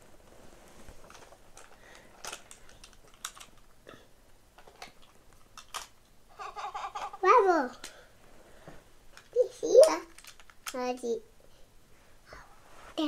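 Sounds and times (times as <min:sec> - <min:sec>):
plastic toy cars clicking: 0:01.1 - 0:03.7, 0:04.6 - 0:06.0, 0:09.2 - 0:11.0.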